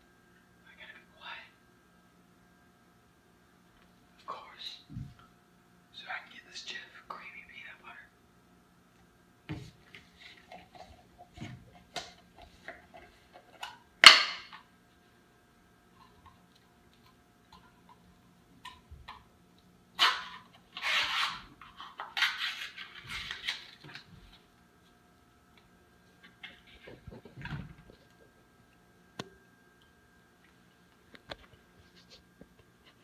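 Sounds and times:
sharp crack: 14.0s - 14.5s
seal tearing and rustling: 20.0s - 24.0s.

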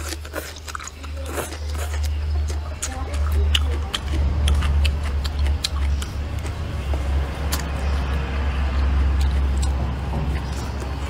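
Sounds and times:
chewing food: 0.0s - 11.0s
deep rumble: 2.3s - 11.0s.

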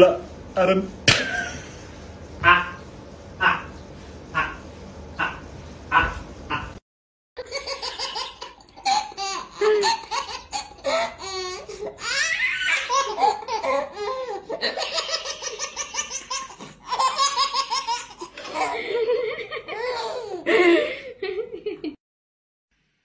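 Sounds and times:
baby laughing: 7.4s - 20.6s
woman laughing: 9.6s - 10.1s, 18.4s - 22.0s.

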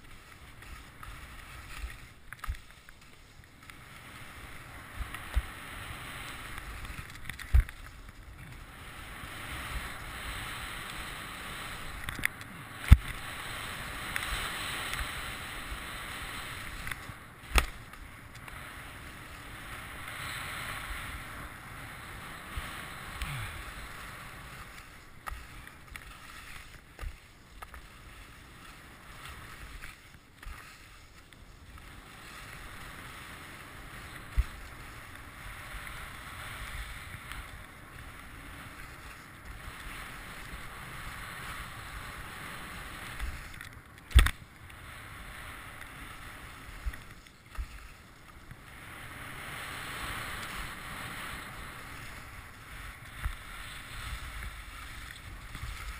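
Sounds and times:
skis scraping over packed snow: 0.0s - 55.9s.

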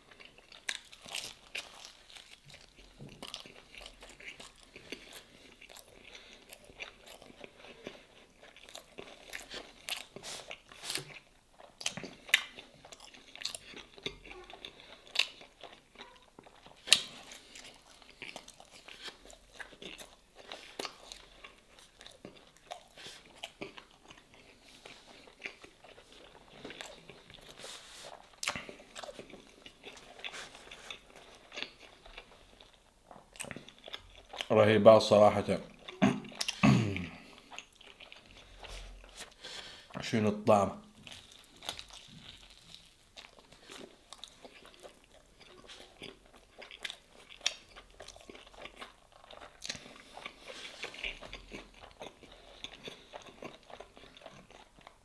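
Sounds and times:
person biting and chewing bread: 0.0s - 34.5s, 35.7s - 40.0s, 40.9s - 55.0s.

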